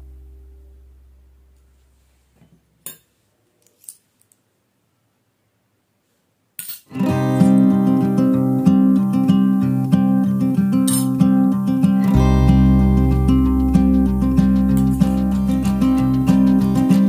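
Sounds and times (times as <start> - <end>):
guitar music: 6.9 - 17.0
small metal utensils clinking: 10.9 - 11.2.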